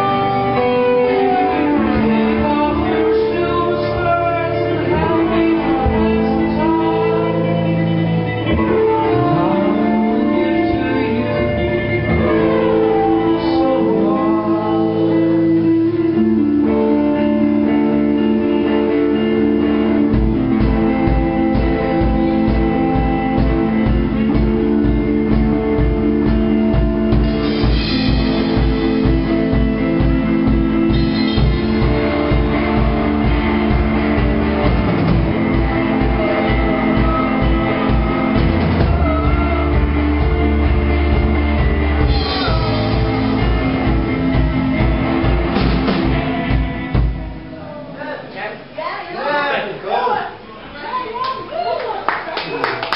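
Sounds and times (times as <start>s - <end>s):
person singing: 0.0s - 48.0s
electric guitars holding chords: 0.0s - 48.8s
drum kit steady beat: 17.4s - 48.0s
cymbals: 27.1s - 47.8s.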